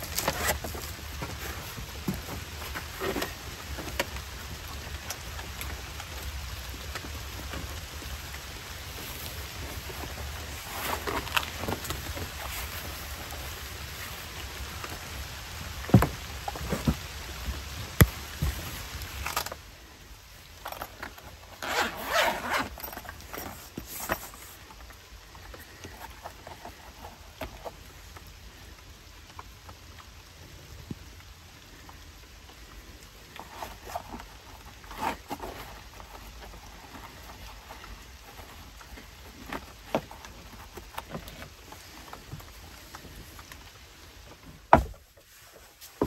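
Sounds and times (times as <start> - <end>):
fabric rustling: 0.0 - 20.0, 20.7 - 27.2
zipper zipping: 21.6 - 24.1.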